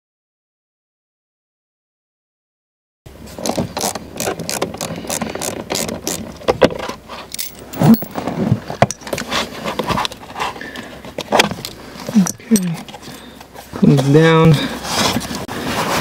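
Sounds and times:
clicking and knocking of car parts: 3.4s - 7.0s, 7.6s - 13.5s.

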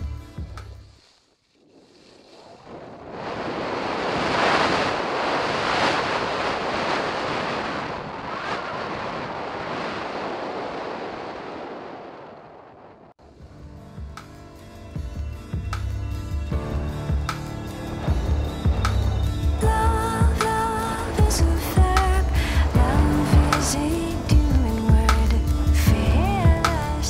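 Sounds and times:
skis sliding on packed snow: 0.6s - 7.7s
wind rushing over microphone: 1.7s - 13.2s.

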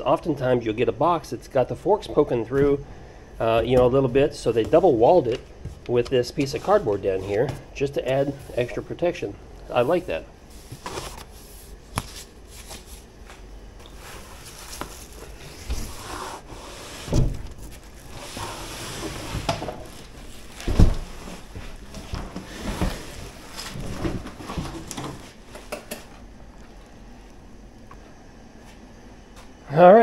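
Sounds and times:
heavy thumps: 2.1s - 8.4s
plastic wrap and foam rustling: 3.4s - 7.4s, 9.7s - 25.6s
cardboard scraping: 9.8s - 13.1s, 13.9s - 25.4s.

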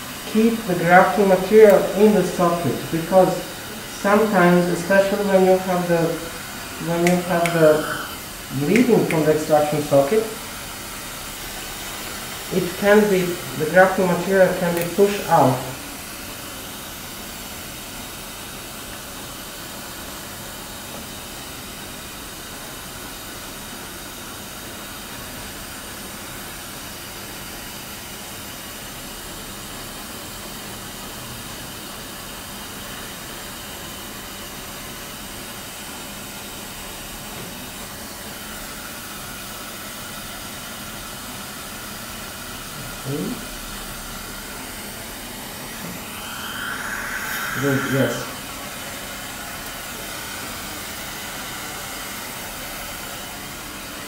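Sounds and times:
steady background hiss: 0.0s - 16.0s, 44.4s - 50.0s
brief rising sound: 45.8s - 48.6s.

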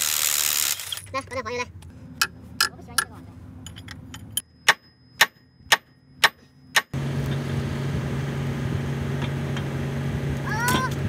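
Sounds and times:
steady engine drone: 0.2s - 11.0s
ringing metal-on-metal strikes: 4.4s - 7.0s.

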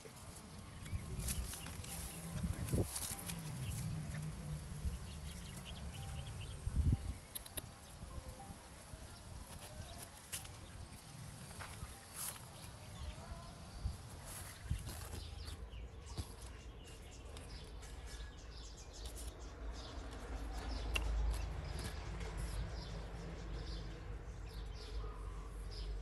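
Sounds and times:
small birds chirping: 0.1s - 26.0s.

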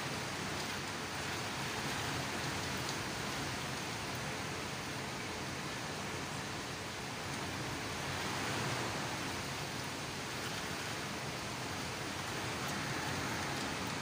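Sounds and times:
heavy rain falling: 0.0s - 14.0s.

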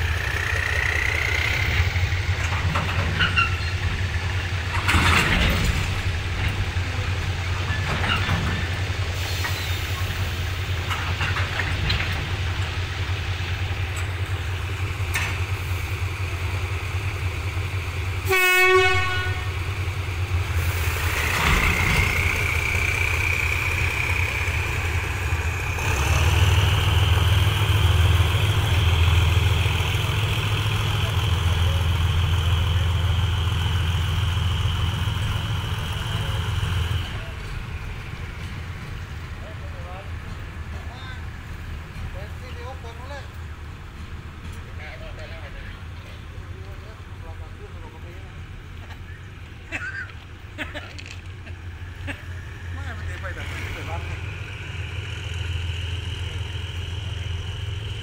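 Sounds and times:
diesel locomotive engine drone: 0.0s - 58.0s
freight wagons rolling: 1.7s - 8.9s, 48.9s - 54.1s
wheel squeal: 2.9s - 3.9s, 7.6s - 10.0s
train horn toot: 18.2s - 19.7s.

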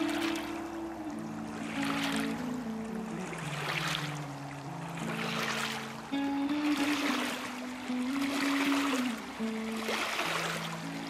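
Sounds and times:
slow sustained background music: 0.0s - 11.0s
waves lapping on pebbles: 0.0s - 11.0s.

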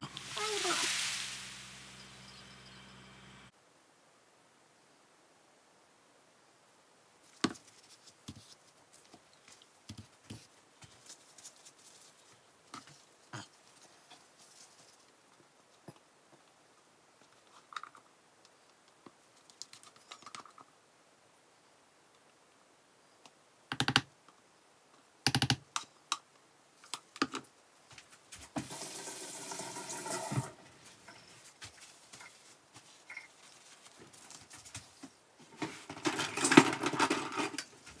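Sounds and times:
plastic measuring cups clattering: 35.5s - 37.7s.

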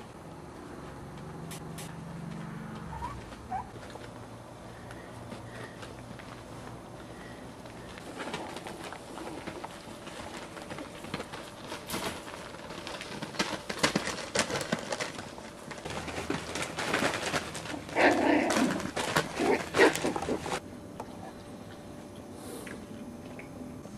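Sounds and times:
puppies scuffling: 0.0s - 20.6s
puppies whining: 2.8s - 3.9s.

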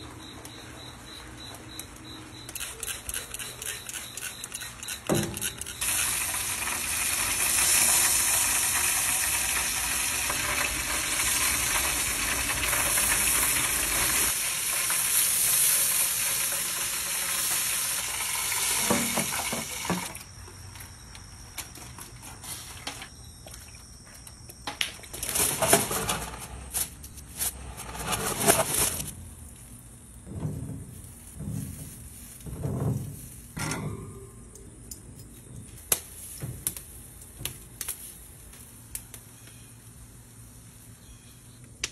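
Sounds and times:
meat sizzling on a grill: 5.2s - 20.1s.

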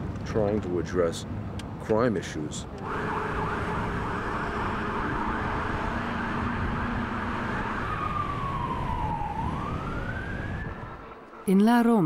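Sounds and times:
low rumble of street traffic: 0.0s - 12.0s
emergency vehicle siren: 2.8s - 11.5s.

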